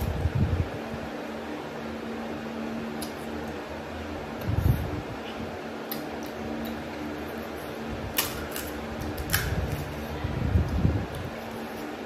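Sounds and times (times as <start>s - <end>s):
background hum: 0.0s - 12.0s.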